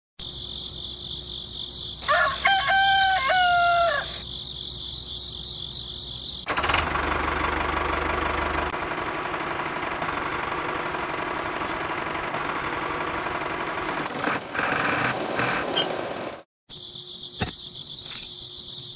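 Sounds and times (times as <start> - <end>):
rooster crowing: 2.0 - 4.3.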